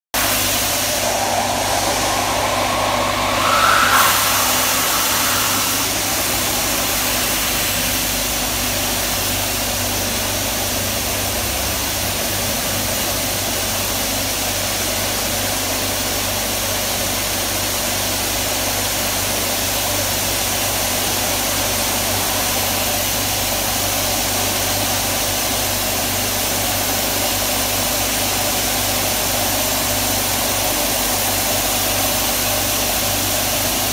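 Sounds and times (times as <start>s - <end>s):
rising whine: 0.1s - 8.9s
vacuum suction rushing: 0.2s - 8.4s
low machine hum: 0.2s - 8.7s.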